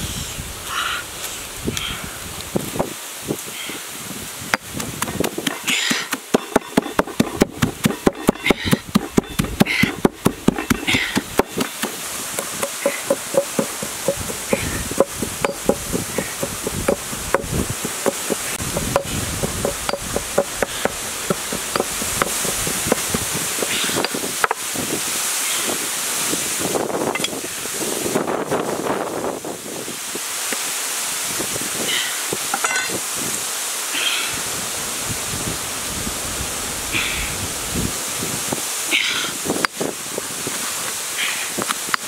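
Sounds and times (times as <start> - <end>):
steady hiss: 0.0 - 42.0
stone mortar and pestle pounding: 4.6 - 24.6.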